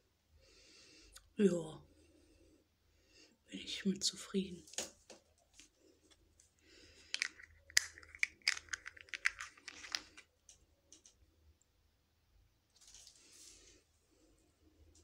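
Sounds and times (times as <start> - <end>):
plastic packaging clicks and crinkles: 7.1 - 10.2.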